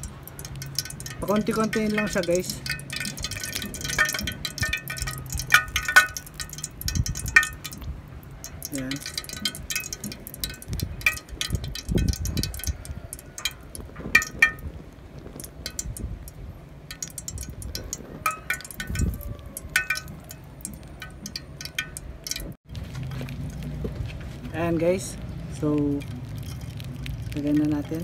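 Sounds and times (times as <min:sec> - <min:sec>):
metal spoon clinking on tin can: 0:00.0 - 0:07.8, 0:08.4 - 0:14.6, 0:16.9 - 0:22.5.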